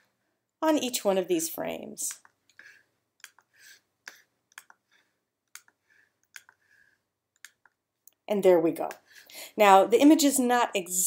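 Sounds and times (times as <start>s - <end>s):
computer mouse clicks: 5.5s - 6.6s, 7.4s - 8.2s.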